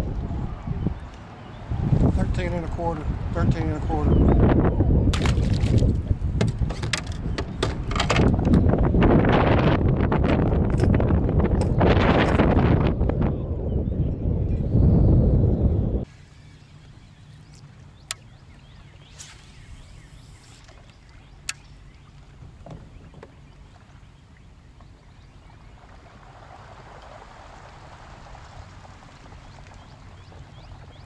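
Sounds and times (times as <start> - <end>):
water lapping at hull: 16.0 - 31.0.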